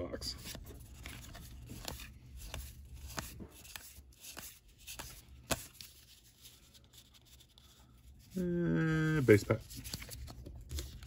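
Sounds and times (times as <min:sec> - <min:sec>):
trading cards flipped by hand: 0:00.4 - 0:07.8, 0:09.6 - 0:11.0.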